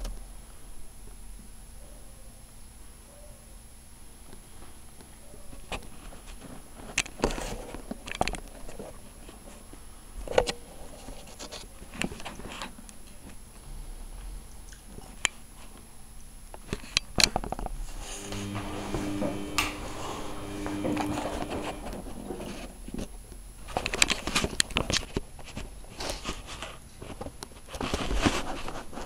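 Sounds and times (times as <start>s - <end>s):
washing machine drum turning: 18.0s - 22.5s.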